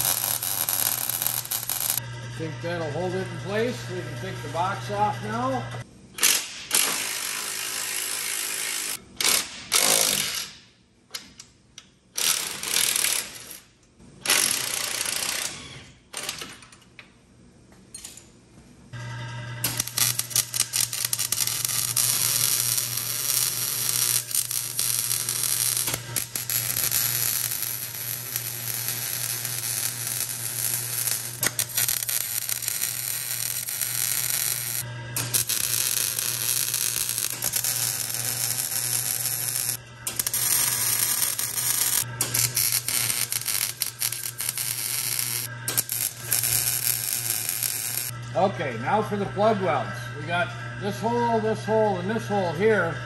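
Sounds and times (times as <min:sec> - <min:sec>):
welder crackling: 0:00.0 - 0:02.0, 0:19.6 - 0:48.2.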